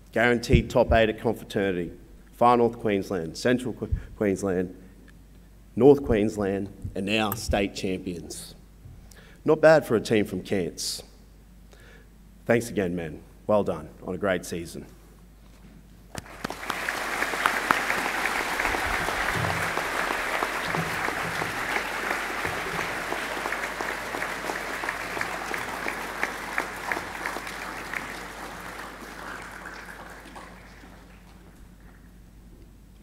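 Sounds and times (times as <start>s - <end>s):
audience applauding: 16.1s - 32.1s.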